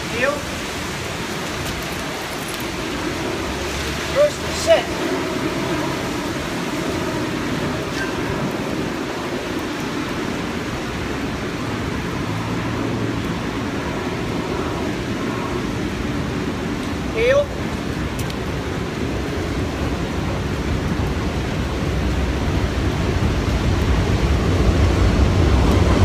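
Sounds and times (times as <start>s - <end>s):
heavy rain on wet street: 0.0s - 26.0s
low traffic rumble: 0.0s - 26.0s.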